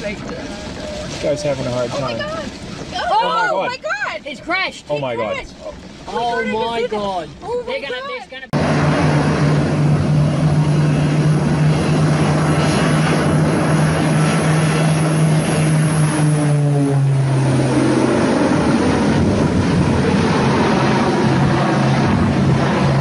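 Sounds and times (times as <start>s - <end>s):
propeller aircraft engines humming: 0.0s - 23.0s
rushing noise: 8.6s - 23.0s.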